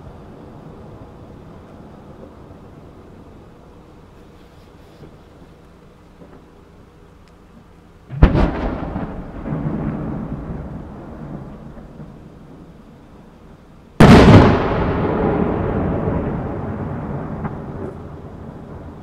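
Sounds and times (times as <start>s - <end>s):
firework shells booming: 8.1s - 12.8s, 14.0s - 19.0s.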